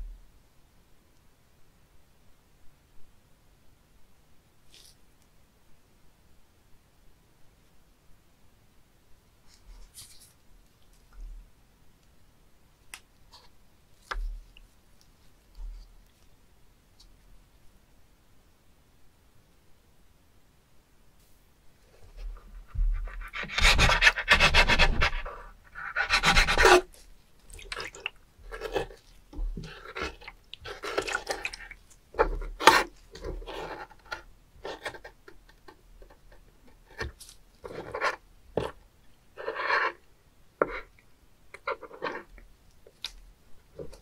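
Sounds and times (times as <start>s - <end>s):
knife scraping wooden board: 22.8s - 27.0s, 28.4s - 35.2s.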